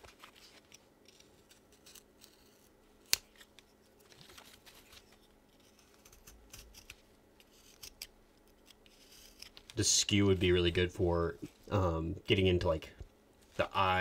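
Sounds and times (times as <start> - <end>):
carving tool cutting wood: 5.6 - 6.9, 8.9 - 9.5.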